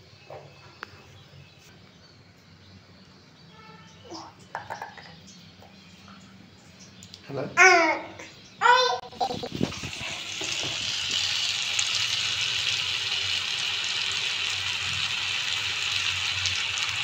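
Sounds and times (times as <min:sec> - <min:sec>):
batter sizzling in hot oil: 0:09.5 - 0:17.0.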